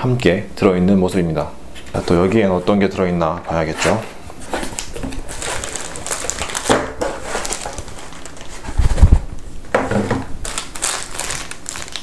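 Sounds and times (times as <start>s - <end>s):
cardboard and plastic bag rustling: 3.5s - 12.0s.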